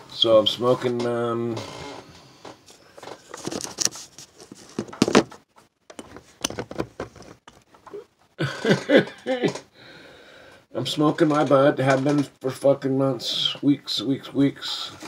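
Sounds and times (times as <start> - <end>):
phone rustling in hands: 2.4 - 8.0.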